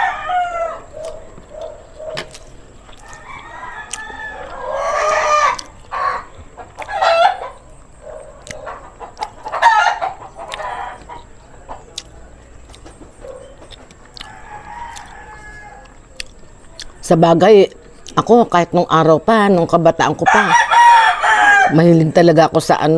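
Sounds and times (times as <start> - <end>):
rooster crowing: 0.0 - 2.2, 2.9 - 8.9, 9.5 - 11.2, 14.2 - 16.1, 20.2 - 21.8.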